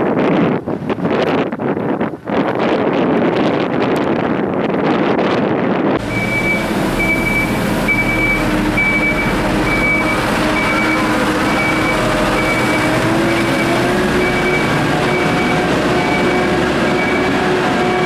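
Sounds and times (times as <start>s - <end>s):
diesel engine drone: 6.0s - 18.0s
reverse alarm beeping: 6.0s - 18.0s.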